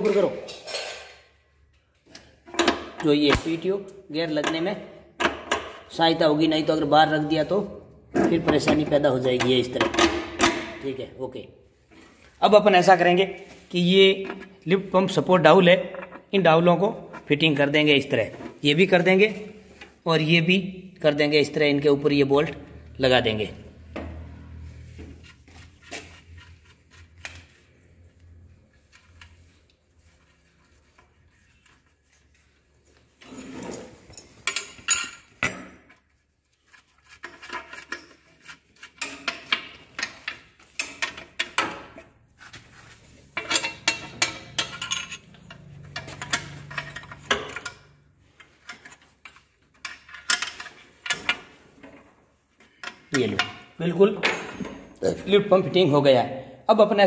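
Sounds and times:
steel tools clinking: 34.0 - 35.5, 43.4 - 48.0.

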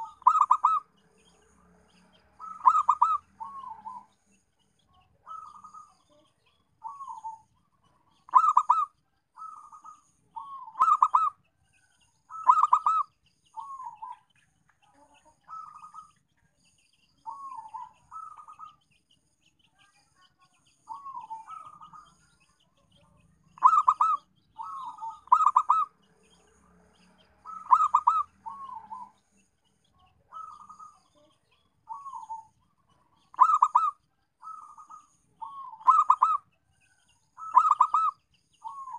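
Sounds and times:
dove cooing: 0.0 - 0.9, 2.4 - 4.1, 5.2 - 6.0, 6.8 - 7.5, 8.1 - 11.4, 12.3 - 14.2, 15.5 - 16.1, 17.3 - 18.8, 20.9 - 22.2, 23.6 - 25.9, 27.4 - 29.2, 30.3 - 31.2, 31.9 - 32.5, 33.2 - 36.4, 37.4 - 38.9
faint high chirps: 0.0 - 38.9.

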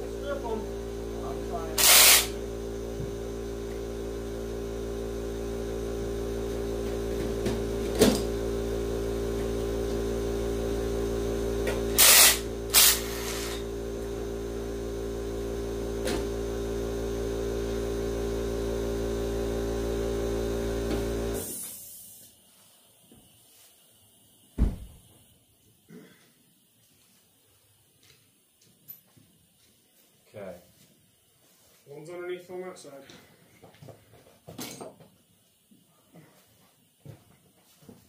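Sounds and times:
machine motor humming: 0.0 - 21.6
loud hissing bursts: 1.5 - 2.4, 11.9 - 13.6.

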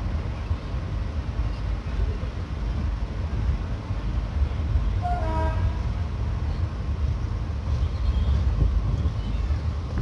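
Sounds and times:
locomotive engine and rail rumble: 0.0 - 10.0
wind: 0.0 - 10.0
train horn toot: 5.0 - 5.9.

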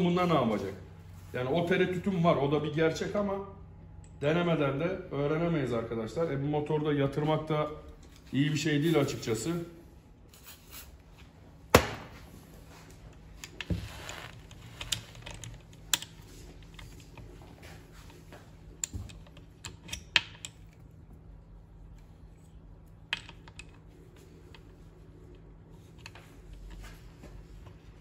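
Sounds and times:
engine parts and tools clicking: 14.4 - 21.1.

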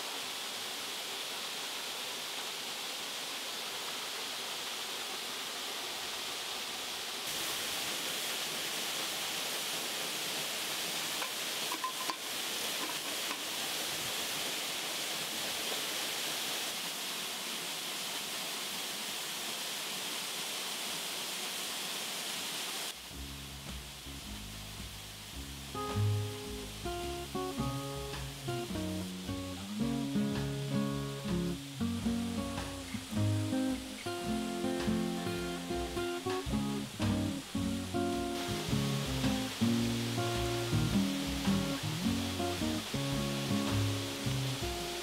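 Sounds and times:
waterfall and stream rushing: 0.0 - 45.0
metal lid clinking on pot: 11.7 - 12.2.

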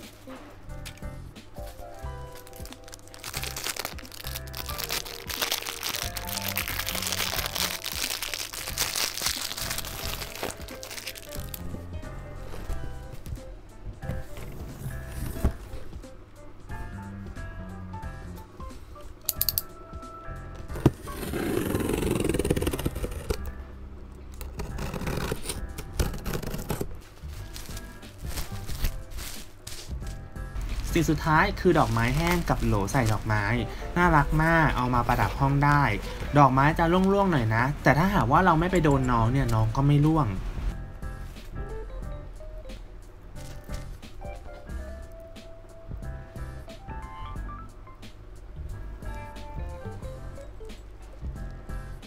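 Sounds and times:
light background music: 0.0 - 52.0
plastic wrapping crinkling: 1.6 - 11.9, 24.5 - 37.5
cardboard rustling: 1.6 - 13.3, 14.1 - 15.9, 20.7 - 23.5, 24.4 - 37.0
blade slitting packing tape: 2.4 - 11.6, 20.8 - 23.5, 24.4 - 29.9.

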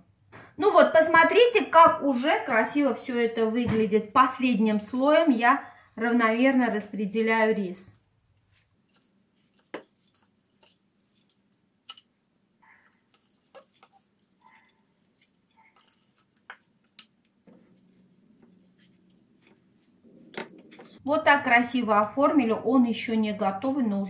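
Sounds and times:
soft rustles: 8.3 - 11.5, 12.7 - 21.0.

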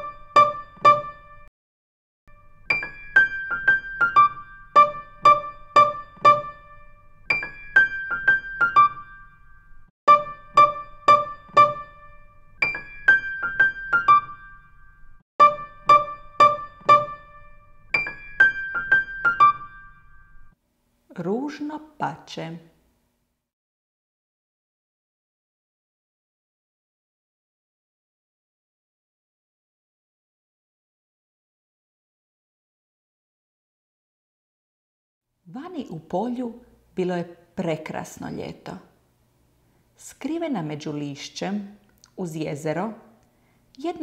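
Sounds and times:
bright keyboard tune: 0.0 - 1.5, 2.3 - 20.6.

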